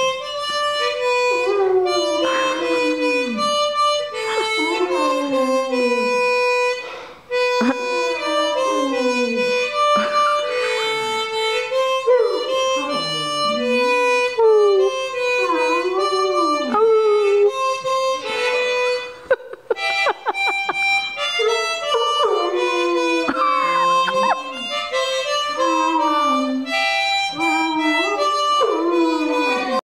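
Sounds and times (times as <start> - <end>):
harmonica playing: 0.0 - 29.8
dog howling: 0.8 - 6.6, 7.7 - 10.1, 11.6 - 17.9, 21.2 - 29.8.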